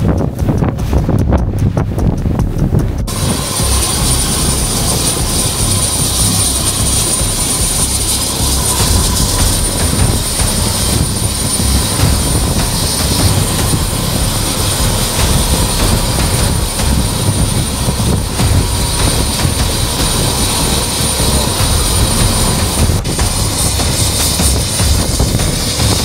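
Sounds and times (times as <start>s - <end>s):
heavy low rumble: 0.0s - 26.0s
helicopter turbine whine: 0.0s - 26.0s.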